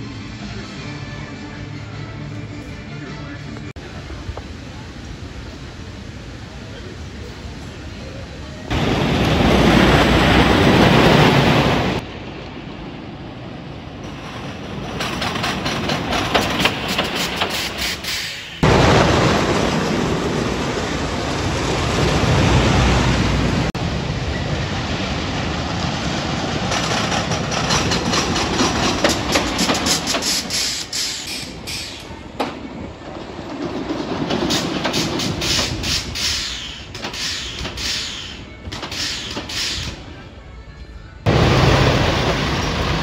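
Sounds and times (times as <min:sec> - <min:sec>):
roller coaster train rumbling: 0:03.5 - 0:43.0
wheels clacking on track: 0:13.9 - 0:23.9, 0:25.6 - 0:40.1.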